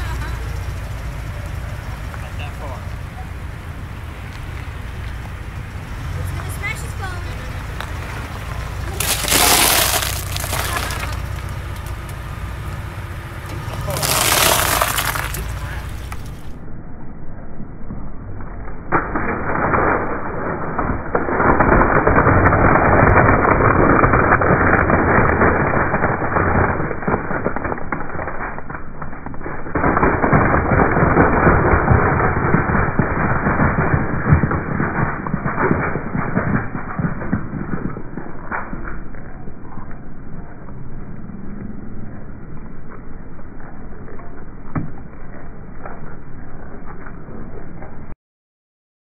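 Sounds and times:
dry noodles crunching under tire: 7.8 - 12.2, 13.6 - 16.5, 21.0 - 35.6.

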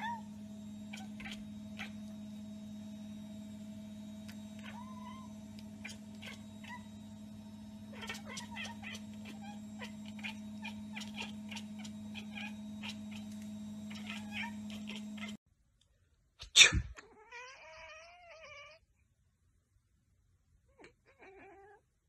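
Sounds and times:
steady low hum: 0.0 - 15.4
cat chattering chirps: 0.9 - 2.0, 4.6 - 7.0, 7.9 - 15.4.

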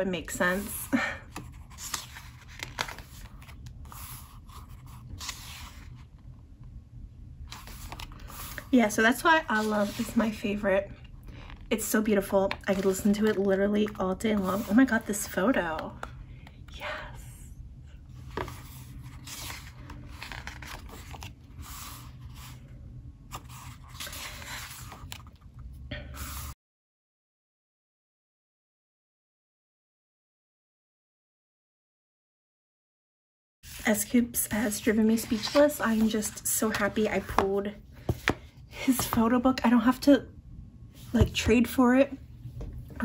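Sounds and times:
low steady room hum: 0.0 - 26.6, 33.6 - 43.0
paper pages rustling: 0.5 - 6.1, 7.5 - 8.7, 12.4 - 15.3, 18.2 - 22.6, 23.3 - 25.5, 34.6 - 39.2.

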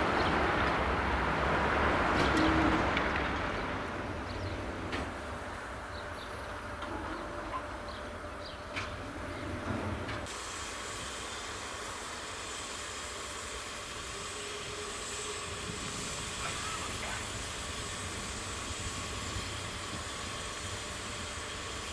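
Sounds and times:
birds chirping: 5.8 - 9.6
steam locomotive hissing: 8.9 - 21.9.

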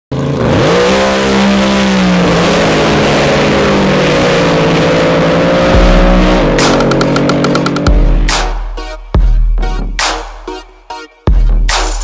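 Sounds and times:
racing boat engine revving: 0.1 - 8.6.

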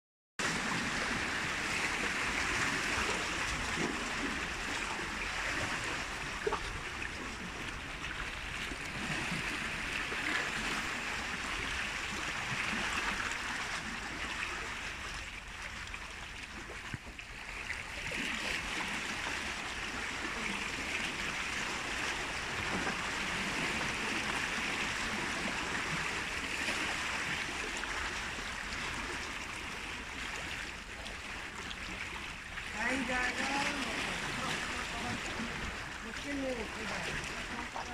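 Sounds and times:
sea water splashing on rocks: 30.7 - 37.9.

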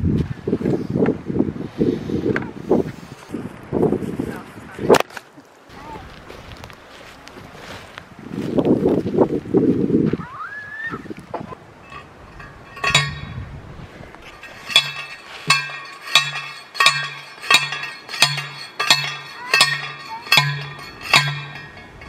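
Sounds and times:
post driver clanging on metal post: 11.8 - 13.4, 14.2 - 22.0.

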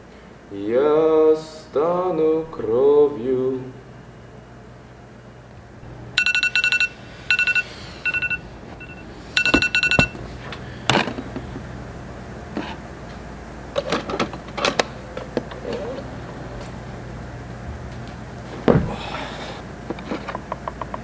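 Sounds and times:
electronic alarm beeping: 6.1 - 10.3.

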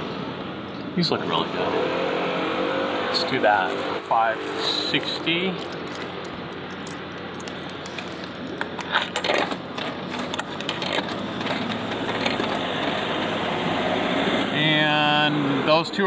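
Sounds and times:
coins clinking into vending machine: 5.2 - 13.1.

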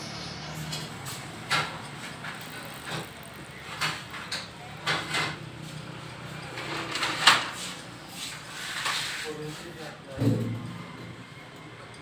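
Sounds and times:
rubber hose rubbing and scraping: 0.8 - 6.0, 6.6 - 10.0.

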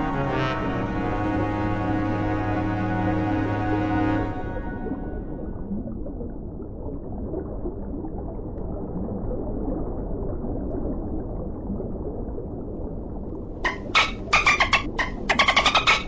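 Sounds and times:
low underwater water noise: 0.0 - 16.0
rapid dolphin clicks: 13.6 - 16.0.

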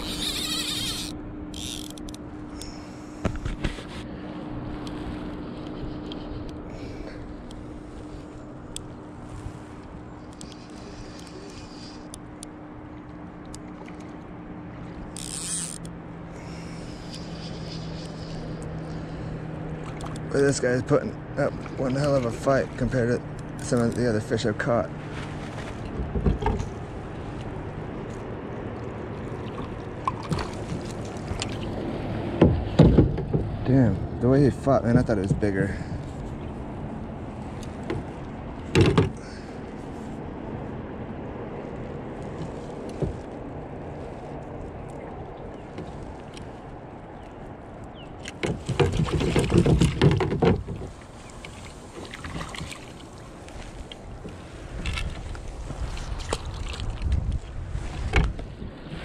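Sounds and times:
water lapping against hull: 0.0 - 59.0
wind: 0.0 - 59.0
small splashes and knocks: 16.5 - 20.6, 21.4 - 24.0, 25.1 - 33.6, 44.8 - 59.0
water washing: 17.8 - 24.3, 48.2 - 58.2
knocks and rustles of handling net: 48.2 - 59.0.

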